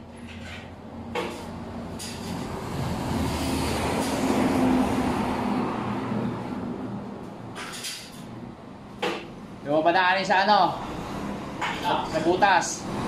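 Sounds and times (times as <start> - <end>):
vehicle engine rumbling past: 1.5 - 7.2.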